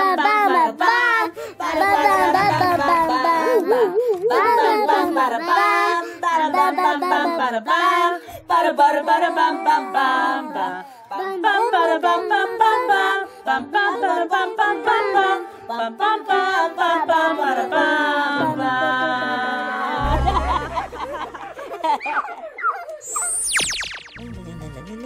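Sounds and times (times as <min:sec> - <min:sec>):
person singing: 0:00.0 - 0:08.0, 0:08.9 - 0:21.8
low bass notes: 0:20.0 - 0:21.6.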